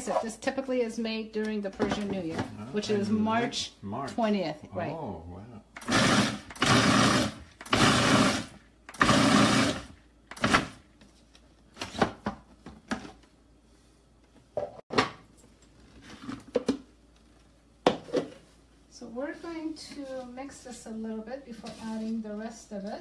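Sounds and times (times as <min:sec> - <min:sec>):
food processor pulsing: 0:05.8 - 0:10.8.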